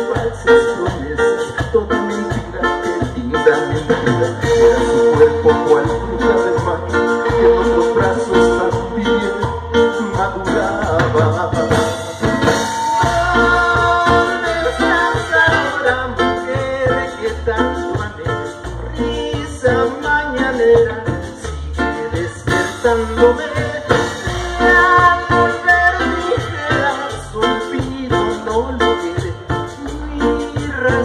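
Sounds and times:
drums: 0:00.0 - 0:31.0
guitar: 0:00.0 - 0:31.0
rhythmic bass line: 0:00.0 - 0:31.0
saxophones: 0:11.7 - 0:16.9, 0:22.0 - 0:27.4.

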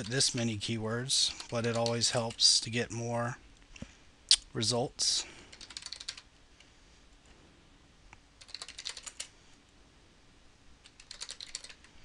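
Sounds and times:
typing on computer keyboard: 0:01.4 - 0:02.4, 0:05.5 - 0:06.3, 0:08.4 - 0:09.3, 0:10.8 - 0:12.0.

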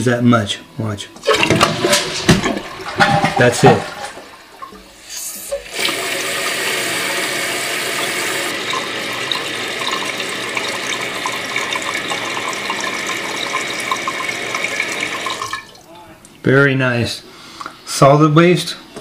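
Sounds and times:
toilet tank refilling: 0:01.2 - 0:16.4
water bubbling: 0:01.3 - 0:07.5.

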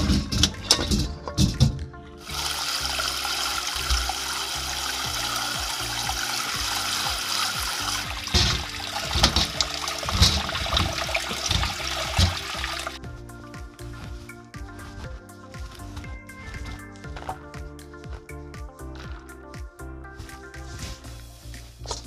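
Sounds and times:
bones knocking in metal colander: 0:00.0 - 0:03.0, 0:05.6 - 0:13.0
tap water running into metal bowl: 0:02.2 - 0:13.0.

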